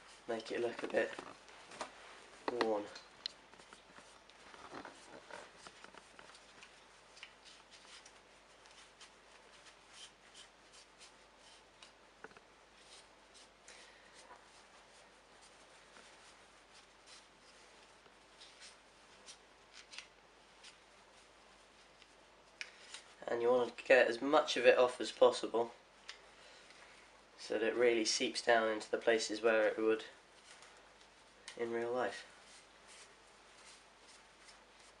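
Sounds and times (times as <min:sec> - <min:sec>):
cloth rag rubbing plastic: 0:03.5 - 0:11.9, 0:32.0 - 0:35.0.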